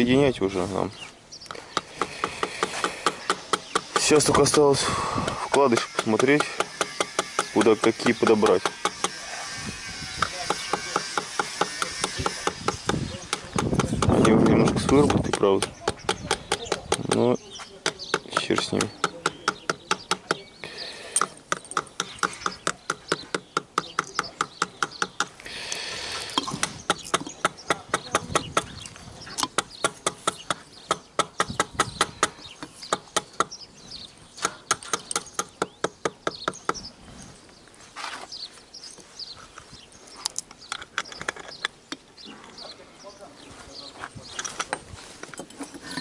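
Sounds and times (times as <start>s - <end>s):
metal-on-metal tapping: 5.6s - 9.2s.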